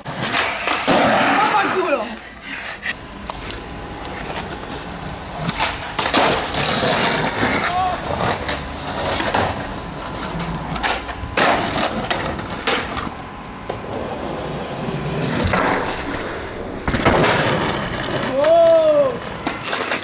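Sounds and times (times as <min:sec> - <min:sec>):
skateboard wheels rolling on asphalt: 0:00.0 - 0:20.0
skateboard tail popping and landing: 0:05.4 - 0:07.6, 0:15.3 - 0:18.6.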